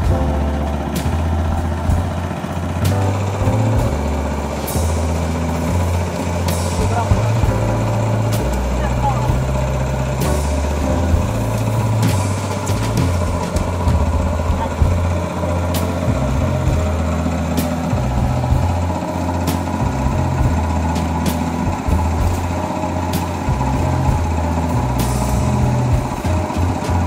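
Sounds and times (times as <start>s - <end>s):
sharp ticking: 0.0s - 27.0s
water pump engine running: 0.0s - 27.0s.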